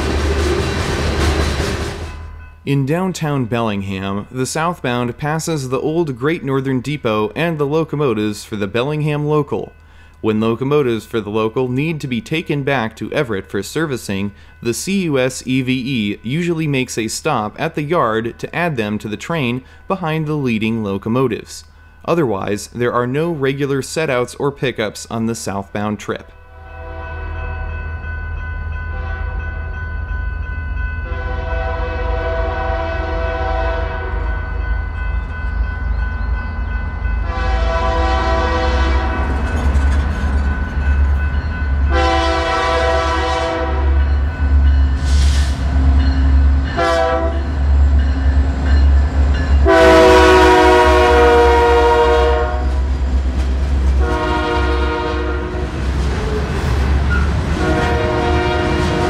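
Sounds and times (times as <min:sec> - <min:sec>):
train rumbling past: 0:00.0 - 0:06.4, 0:25.5 - 0:59.0
locomotive air horn blasts: 0:31.1 - 0:34.3, 0:37.2 - 0:39.2, 0:41.9 - 0:44.0, 0:46.8 - 0:47.4, 0:49.6 - 0:52.8, 0:54.0 - 0:55.7, 0:57.6 - 0:59.0.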